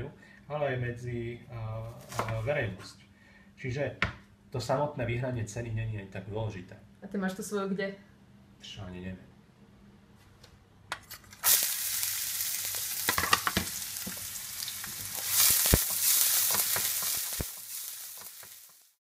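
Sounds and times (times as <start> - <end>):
eggs sizzling in an oiled pan: 11.3 - 19.0
utensil knocking in a pan: 13.0 - 14.2, 14.8 - 18.8.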